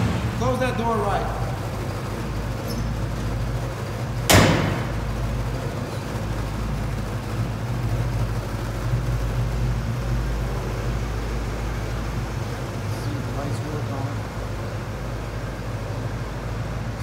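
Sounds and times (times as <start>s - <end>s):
truck engine idling: 0.0s - 17.0s
truck door slamming: 4.2s - 5.2s.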